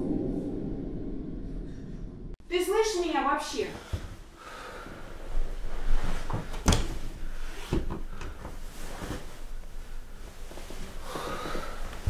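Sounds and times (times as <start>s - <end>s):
sheet rustling: 3.6s - 12.0s.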